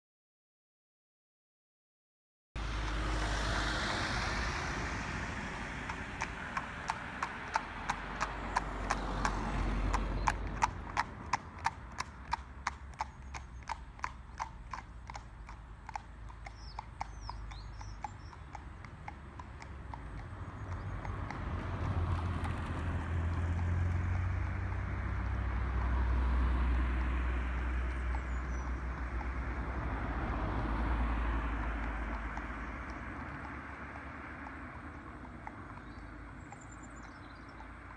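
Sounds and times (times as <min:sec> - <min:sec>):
rushing noise: 0:02.6 - 0:09.2
hooves clip-clopping on tarmac: 0:04.2 - 0:37.9.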